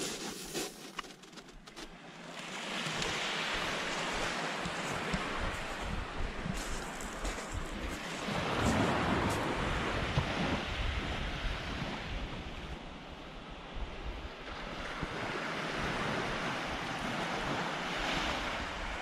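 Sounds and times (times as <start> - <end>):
small waves washing on beach: 0.0 - 19.0
wind buffeting microphone: 5.1 - 12.7.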